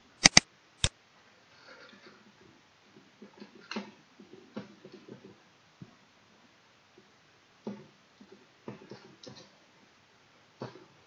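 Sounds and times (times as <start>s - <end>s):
mouse clicks: 0.0s - 0.4s
soft keyboard keystrokes: 0.0s - 0.4s.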